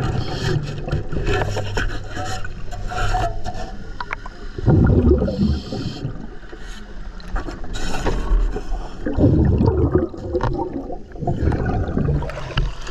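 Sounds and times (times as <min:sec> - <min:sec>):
exhaled bubbles burbling: 0:04.6 - 0:06.4, 0:09.0 - 0:12.9.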